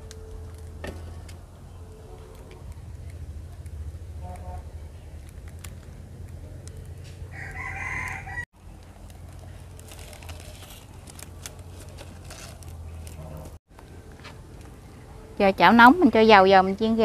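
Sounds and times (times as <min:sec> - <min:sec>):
rooster crowing: 0:07.3 - 0:08.5.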